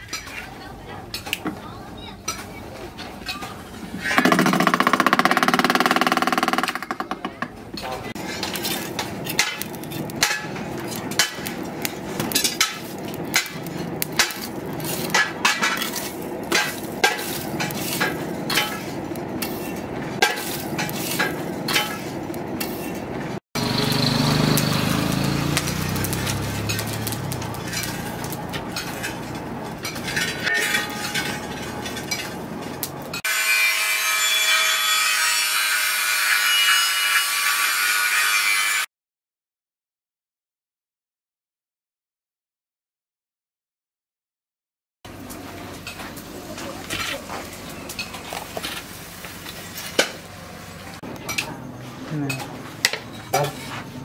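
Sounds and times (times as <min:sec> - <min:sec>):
charcoal crackling in a forge: 0:07.6 - 0:33.4, 0:45.1 - 0:54.0.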